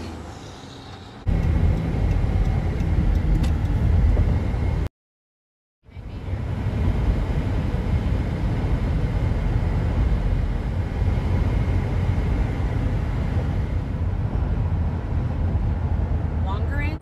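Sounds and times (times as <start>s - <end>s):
road and wind noise in car: 0.0s - 4.9s, 5.8s - 17.0s.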